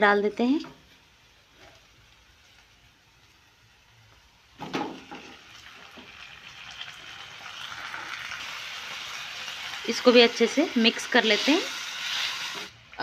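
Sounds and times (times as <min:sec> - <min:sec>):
oil sizzling: 0:00.0 - 0:13.0
tomatoes plopping into pan: 0:04.5 - 0:06.3.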